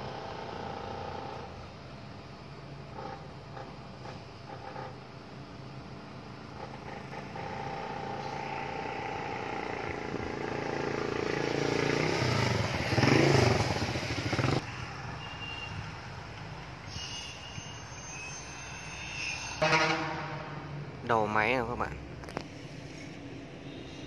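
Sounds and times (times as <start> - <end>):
passing vehicle engine: 5.5 - 15.2, 19.6 - 21.0.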